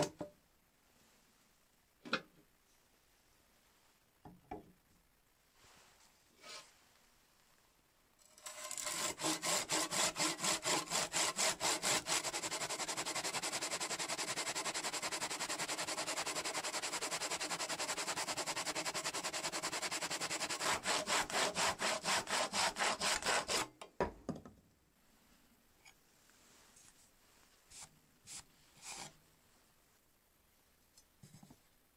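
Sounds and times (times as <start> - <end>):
hand saw cutting wood: 8.2 - 23.7.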